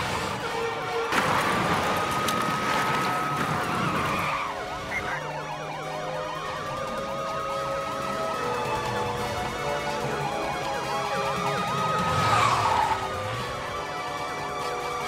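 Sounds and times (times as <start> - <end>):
rush of speeding cars: 0.0 - 5.3, 8.5 - 15.0
police sirens wailing: 0.0 - 15.0.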